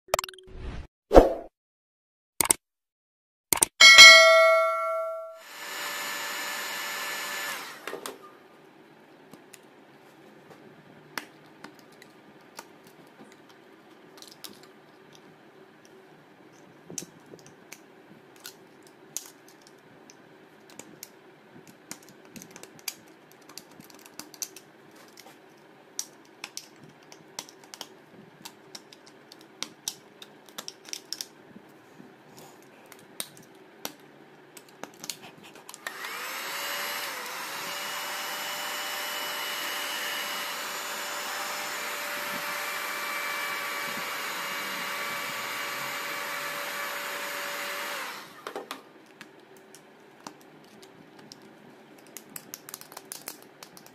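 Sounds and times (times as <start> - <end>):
hot air gun blowing and whining: 5.4 - 7.9, 35.8 - 48.4.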